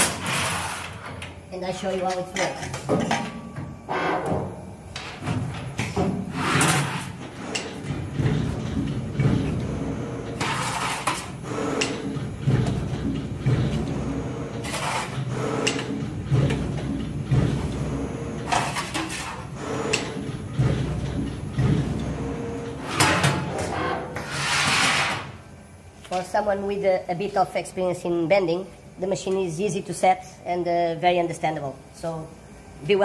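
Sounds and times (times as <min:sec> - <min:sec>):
servo hum: 0:06.3 - 0:25.4.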